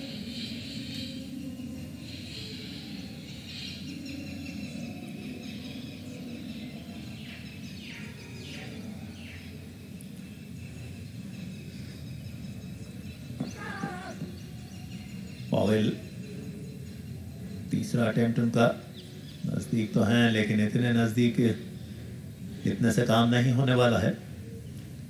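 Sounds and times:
faint high chirps: 0:10.7 - 0:15.2.

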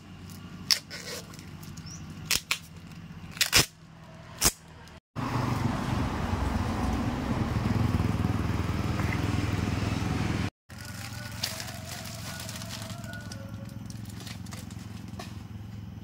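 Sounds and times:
paper wrapping tearing: 0:10.7 - 0:15.0.

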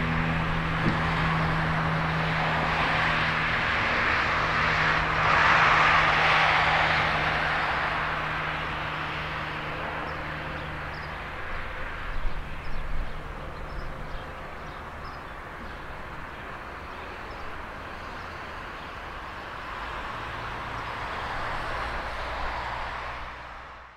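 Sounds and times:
low bumps: 0:00.0 - 0:05.4
diesel locomotive running: 0:00.0 - 0:22.5.

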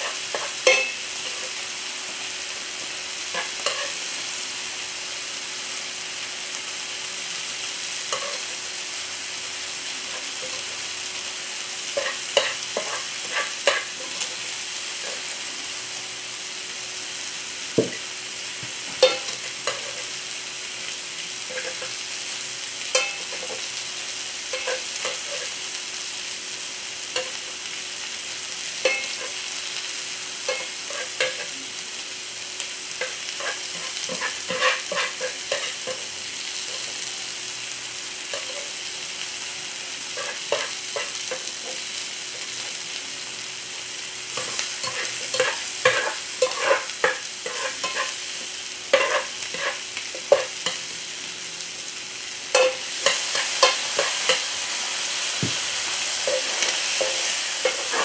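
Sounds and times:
food sizzling: 0:00.0 - 0:58.0
utensil tapping cooking surface: 0:17.8 - 0:18.0, 0:55.4 - 0:55.6.

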